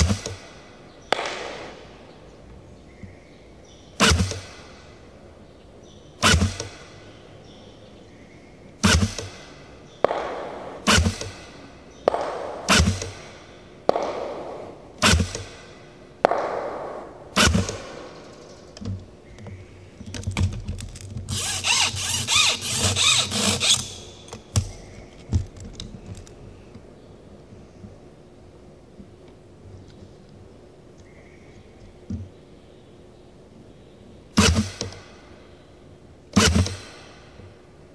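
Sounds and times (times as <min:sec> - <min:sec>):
gunshots with echo: 0:00.0 - 0:02.2, 0:08.8 - 0:18.5.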